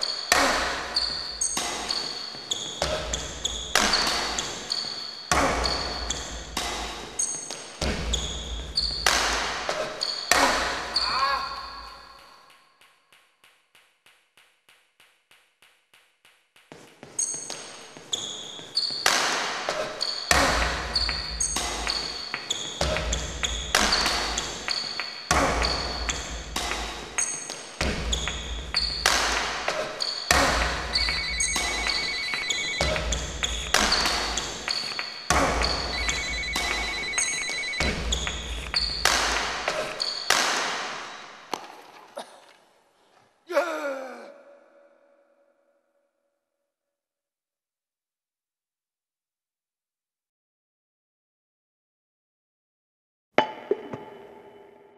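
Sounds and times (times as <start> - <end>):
percussive beat with bass thumps: 30.3 - 34.4, 35.3 - 39.5.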